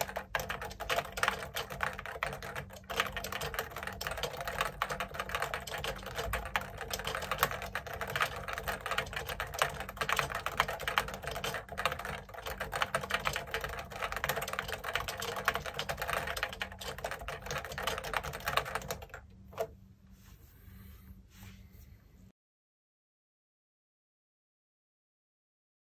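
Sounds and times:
fast keyboard typing: 0:00.0 - 0:19.7.

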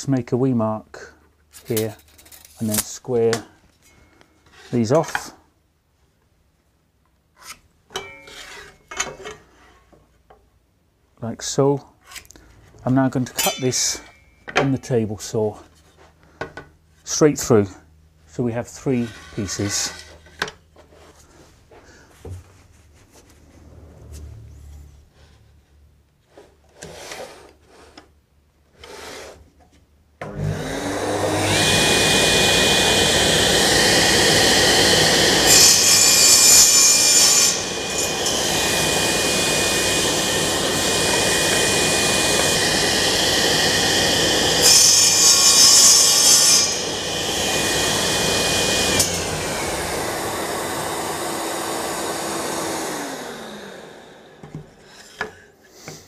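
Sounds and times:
table saw cutting wood: 0:13.4 - 0:14.2, 0:28.9 - 0:29.4, 0:30.2 - 0:55.2
table saw motor whine: 0:30.3 - 0:54.5.

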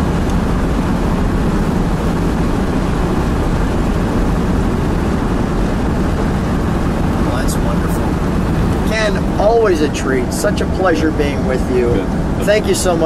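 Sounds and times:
wind noise: 0:00.0 - 0:10.3
engine drone inside car: 0:00.0 - 0:13.0.

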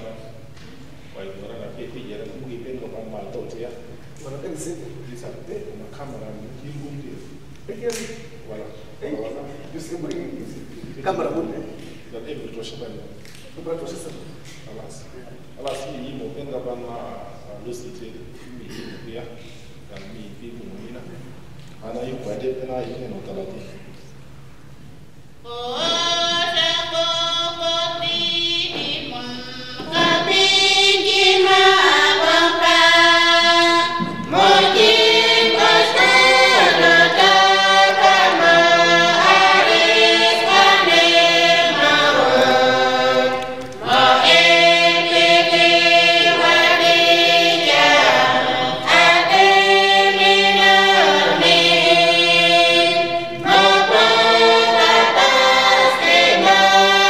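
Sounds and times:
small choir singing unaccompanied: 0:25.4 - 0:57.0.

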